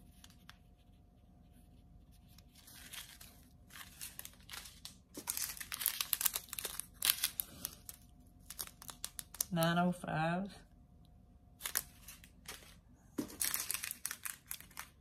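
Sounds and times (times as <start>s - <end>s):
plastic bags crinkling: 2.7s - 9.6s, 11.6s - 15.0s.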